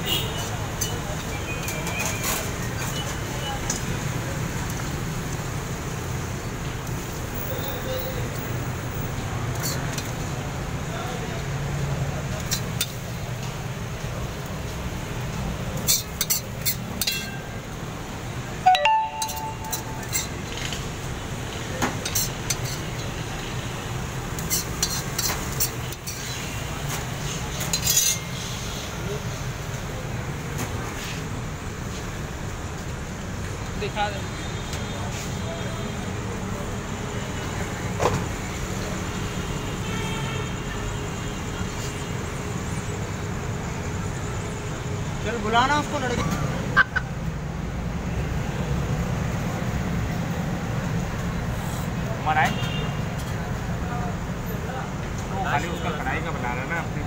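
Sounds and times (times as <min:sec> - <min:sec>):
restaurant kitchen din: 0:00.0 - 0:06.3, 0:06.9 - 0:31.3
metal ladle scraping iron pans: 0:15.8 - 0:17.4, 0:24.4 - 0:26.5, 0:27.6 - 0:28.4
ringing metal clang: 0:18.7 - 0:20.3.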